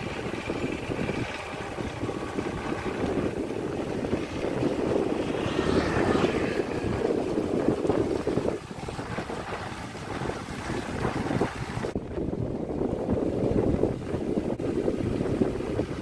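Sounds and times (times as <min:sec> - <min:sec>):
tractor engine under load: 0:00.0 - 0:08.0.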